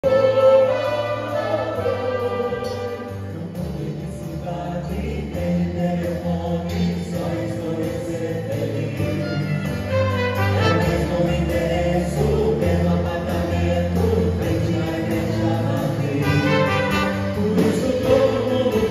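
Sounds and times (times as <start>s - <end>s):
cello violin trumpet and keyboard: 0.0s - 3.5s, 9.2s - 11.8s, 16.2s - 18.5s
vocal group singing: 0.0s - 18.9s.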